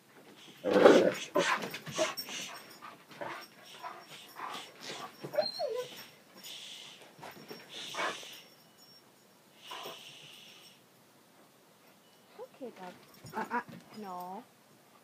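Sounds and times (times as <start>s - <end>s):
dog whining and whimpering: 0.5s - 8.4s
dog panting: 1.2s - 8.5s, 9.6s - 10.1s.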